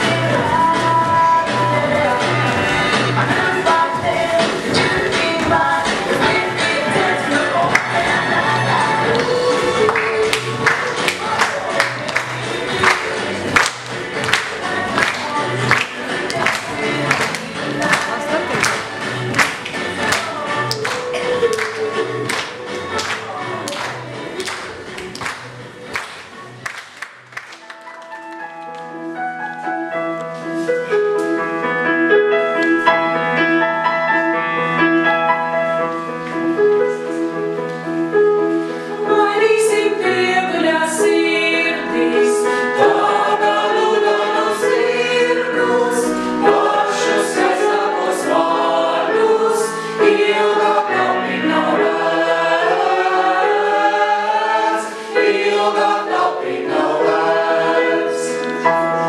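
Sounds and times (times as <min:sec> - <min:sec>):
mixed choir singing in harmony: 0:00.0 - 0:24.6, 0:38.9 - 0:59.0.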